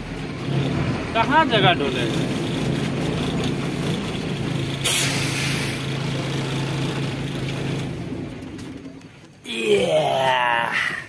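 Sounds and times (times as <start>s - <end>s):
vehicle engine running: 0.0s - 9.4s
short burst of hissing: 4.8s - 5.8s.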